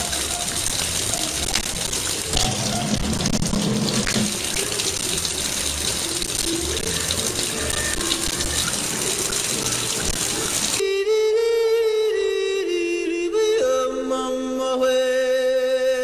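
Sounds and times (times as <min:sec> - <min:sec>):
faucet water running into sink: 0:00.0 - 0:10.8.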